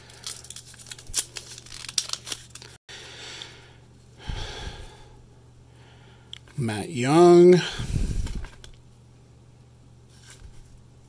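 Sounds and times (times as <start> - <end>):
cards being handled: 0.0 - 2.8
foil wrappers crinkling: 0.0 - 2.8.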